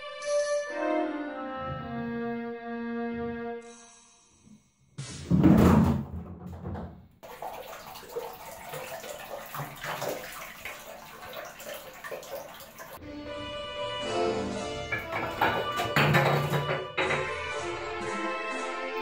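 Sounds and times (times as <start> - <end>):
cat splashing into water: 7.2 - 13.0
light splashing and dripping: 7.2 - 13.0.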